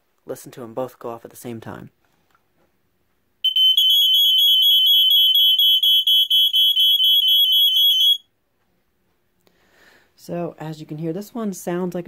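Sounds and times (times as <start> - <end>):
smoke detector alarms pulsing: 3.4 - 8.2.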